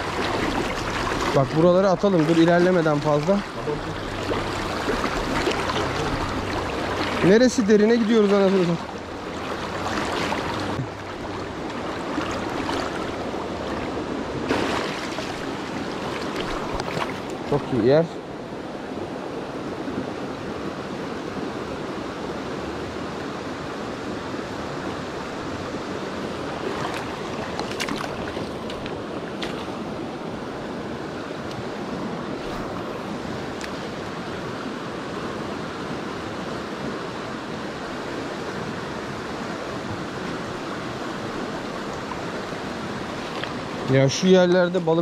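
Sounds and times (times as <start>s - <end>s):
rushing stream water: 0.0s - 45.0s.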